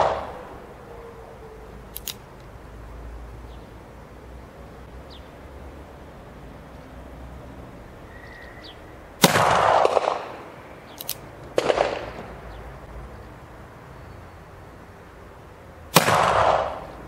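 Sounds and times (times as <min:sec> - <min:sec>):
revolver hammer cocking clicks: 0:01.9 - 0:02.5, 0:10.9 - 0:12.0
revolver shots echoing: 0:09.2 - 0:10.4, 0:11.6 - 0:12.3, 0:15.9 - 0:16.9.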